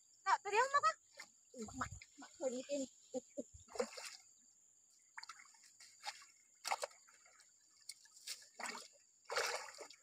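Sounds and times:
small water splashes: 0:03.6 - 0:10.0.

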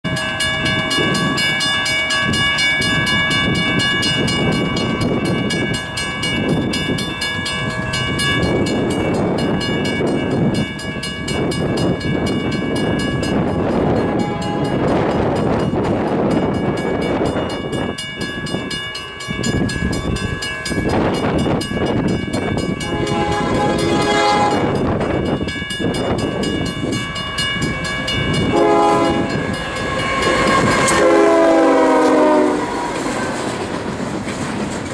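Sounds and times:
buffeting wind: 0:00.0 - 0:34.9
train rumble: 0:00.1 - 0:34.9
train air horn blasts: 0:14.1 - 0:14.9, 0:22.8 - 0:24.8, 0:28.4 - 0:33.0.

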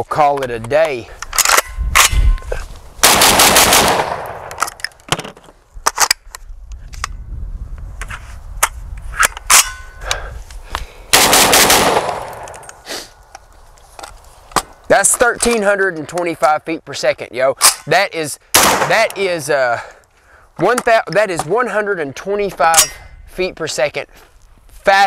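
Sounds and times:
metallic clicks of gun action: 0:00.3 - 0:02.4, 0:04.1 - 0:07.2
shotgun shots with echo: 0:03.0 - 0:04.6, 0:11.1 - 0:12.5, 0:18.6 - 0:19.0.

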